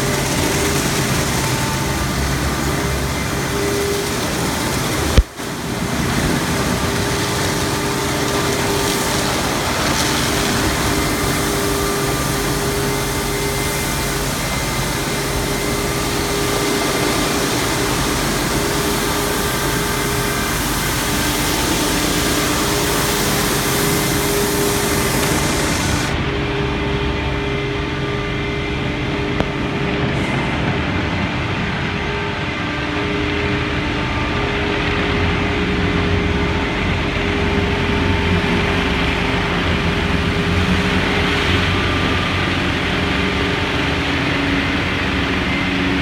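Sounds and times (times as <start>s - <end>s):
spinning car wash brushes: 0.0s - 26.2s
water spraying against car: 0.0s - 26.2s
machinery hum: 0.0s - 46.0s.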